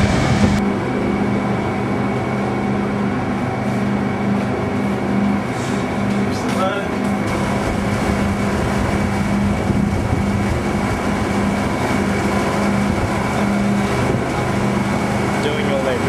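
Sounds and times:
boat engine droning: 0:00.0 - 0:16.0.

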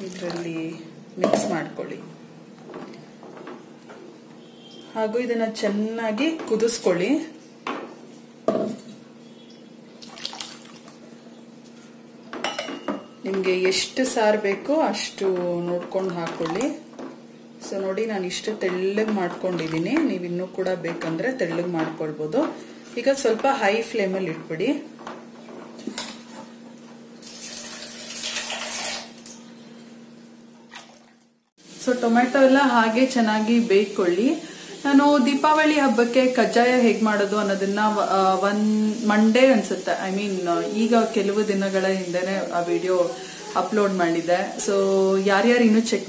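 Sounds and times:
gravy hissing: 0:40.5 - 0:45.0.

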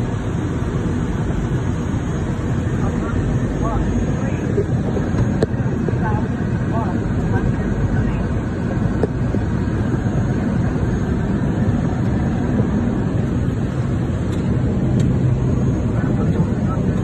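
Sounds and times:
airplane engines droning: 0:00.0 - 0:17.0.

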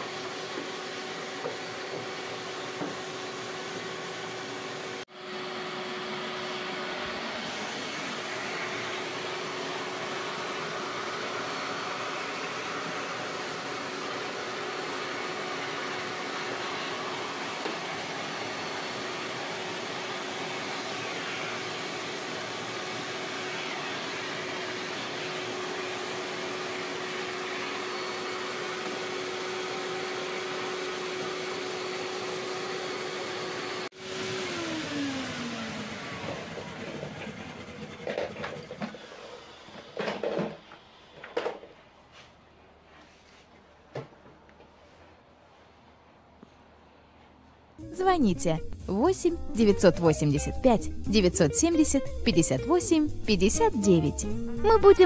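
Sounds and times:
vacuum cleaner whining: 0:00.0 - 0:43.1.

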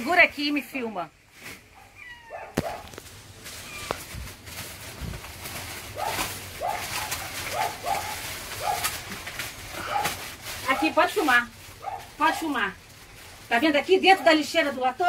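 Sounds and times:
plastic bags crackling and rustling: 0:00.0 - 0:15.0
kittens mewing: 0:01.8 - 0:03.0, 0:03.6 - 0:04.2.

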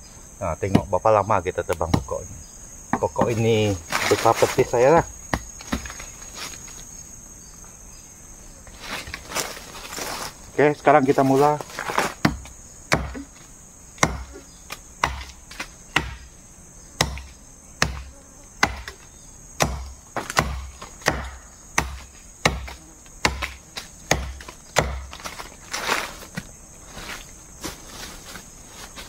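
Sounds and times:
insects chirring: 0:00.0 - 0:29.0
machete chopping tree trunk: 0:00.6 - 0:01.0, 0:01.7 - 0:02.2, 0:05.3 - 0:06.1, 0:11.8 - 0:13.4, 0:14.0 - 0:16.3, 0:17.0 - 0:26.5.

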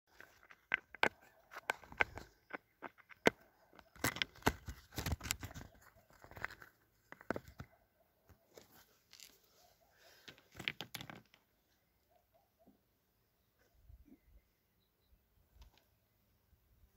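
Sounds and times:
scrambling over loose rock: 0:00.1 - 0:07.7.

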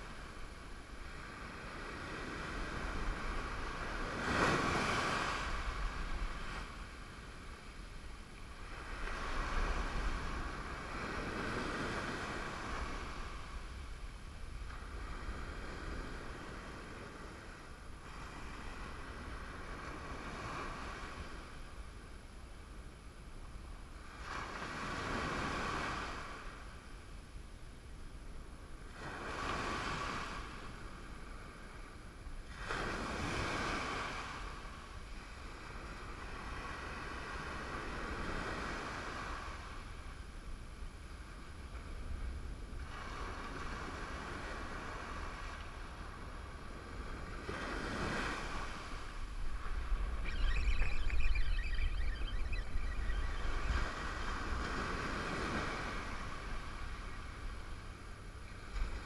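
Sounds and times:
wind buffeting microphone: 0:41.9 - 0:59.0
ocean surf breaking: 0:46.7 - 0:59.0.

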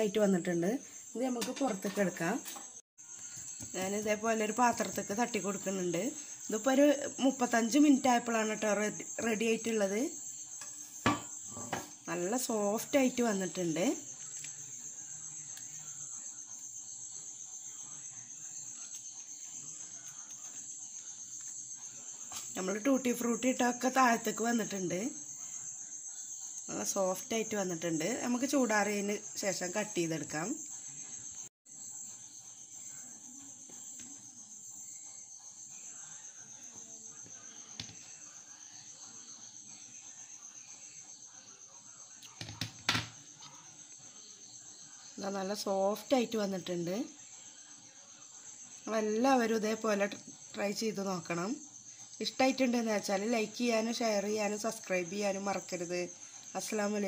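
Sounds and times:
cricket trilling: 0:00.0 - 0:57.0.

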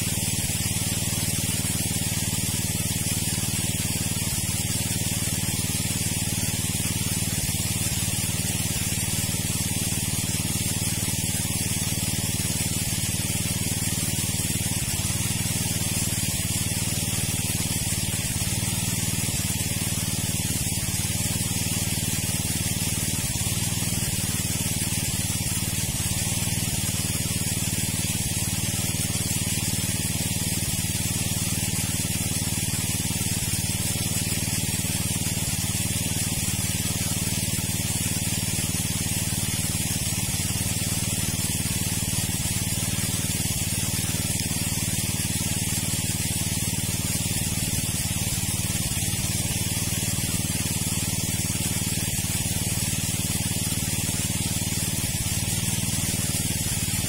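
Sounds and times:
steady hiss: 0:00.0 - 0:57.0.

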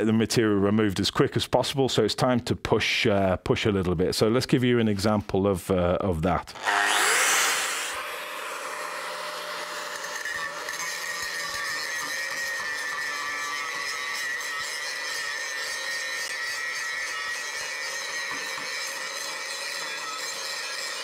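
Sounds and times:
angle grinder grinding steel: 0:06.5 - 0:21.0.

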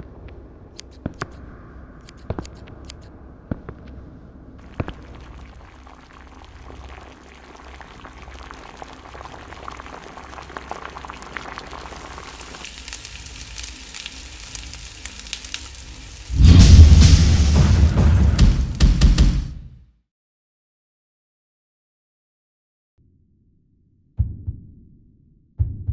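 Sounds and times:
sharp click: 0:02.0 - 0:03.1
liquid bubbling and sizzling: 0:04.6 - 0:17.9.

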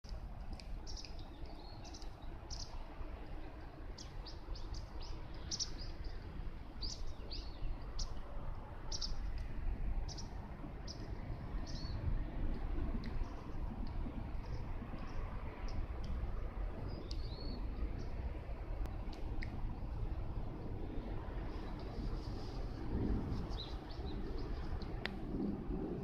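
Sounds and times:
steady low rumble: 0:00.1 - 0:26.0
small birds chirping: 0:00.8 - 0:02.8, 0:04.0 - 0:06.2, 0:08.9 - 0:09.2.

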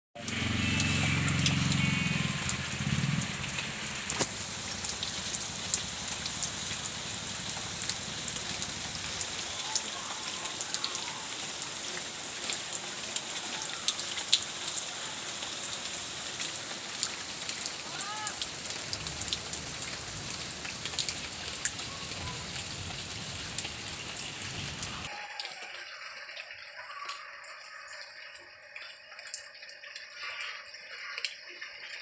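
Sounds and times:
low pitched drone: 0:00.2 - 0:04.2
rain falling on puddles and leaves: 0:00.2 - 0:32.0
raindrops ticking: 0:00.2 - 0:32.0.

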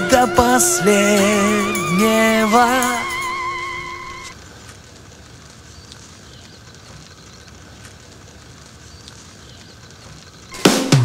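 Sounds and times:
soft crackles: 0:02.0 - 0:10.6.

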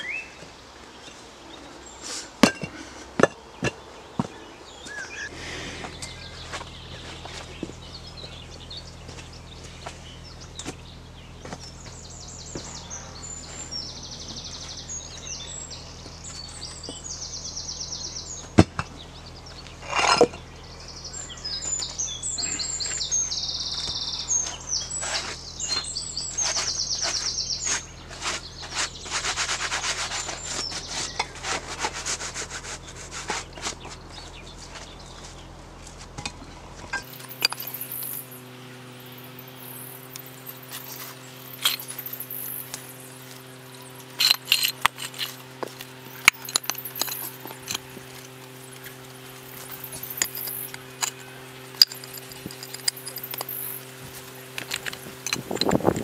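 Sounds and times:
songbirds trilling: 0:00.0 - 0:56.0
scraping and rubbing soil: 0:19.6 - 0:20.4, 0:21.2 - 0:56.0.

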